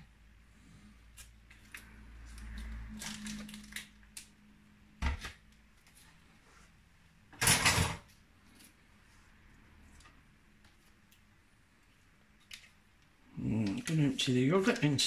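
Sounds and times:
plastic pots rustling: 13.4 - 15.0.

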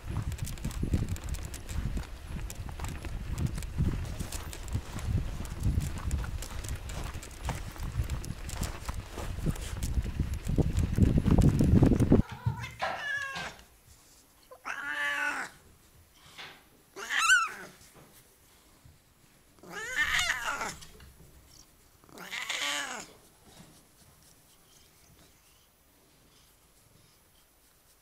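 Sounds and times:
cat meowing: 12.2 - 13.6, 14.5 - 15.6, 17.0 - 17.7, 19.6 - 20.8, 22.1 - 23.1.

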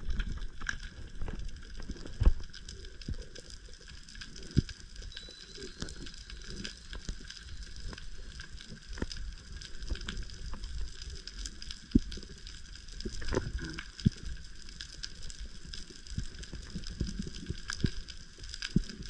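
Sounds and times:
underwater reef clicks and pops: 0.0 - 11.0, 13.0 - 14.3.

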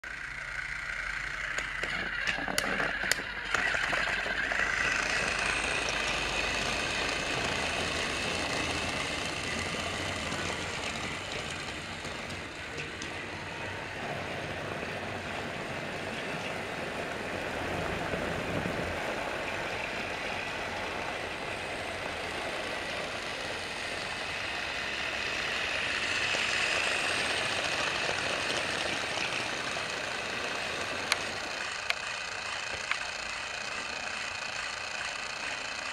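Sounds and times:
wheels rattling: 0.0 - 35.9
toy train motor whir: 0.1 - 13.1, 21.6 - 35.9.

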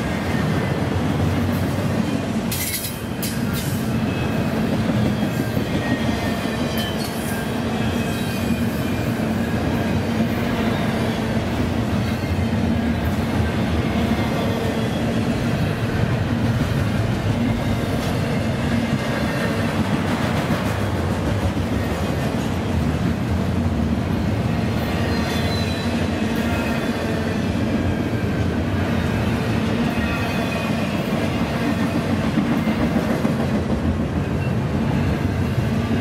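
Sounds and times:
train wheels rumbling on rails: 0.0 - 36.0
high wheel squeal: 25.0 - 26.8.

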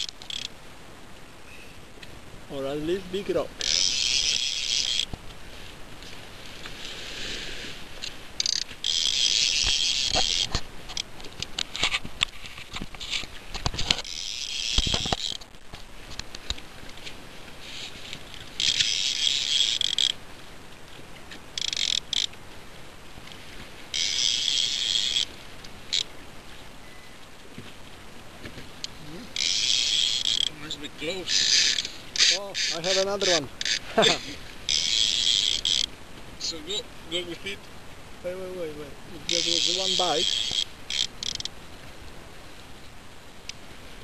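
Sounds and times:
fishing reel drag buzzing: 0.0 - 0.5, 3.6 - 5.1, 8.0 - 11.1, 13.1 - 15.4, 18.3 - 20.2, 21.6 - 22.4, 23.9 - 26.1, 29.4 - 36.0, 39.2 - 41.5
reel clicks: 0.0 - 0.6, 3.6 - 5.4, 8.0 - 17.2, 18.1 - 20.2, 21.3 - 22.4, 23.2 - 26.1, 28.8 - 33.9, 34.7 - 36.0, 39.2 - 41.6.

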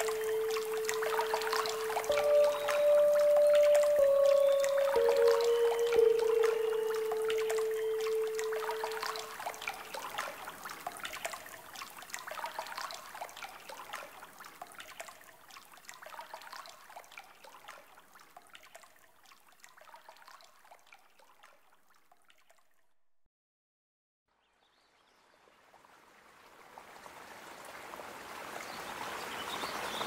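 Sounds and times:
water trickling and dripping: 0.0 - 22.9.

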